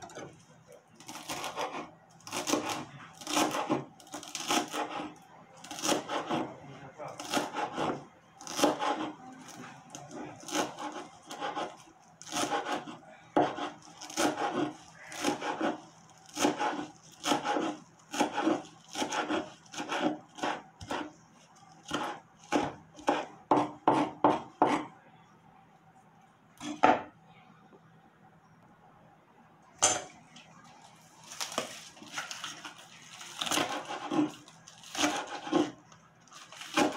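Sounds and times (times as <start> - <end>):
knife chopping on wooden board: 1.1 - 5.1, 7.2 - 9.1, 12.3 - 15.8, 16.4 - 21.1, 21.9 - 24.9, 33.4 - 35.8.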